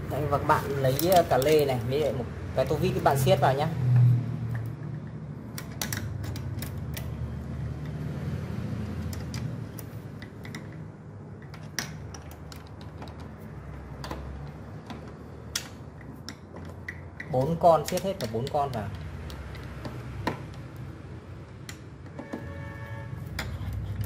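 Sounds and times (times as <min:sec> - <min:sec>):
wrench clicking on bolts: 0:04.5 - 0:07.2, 0:08.9 - 0:20.9.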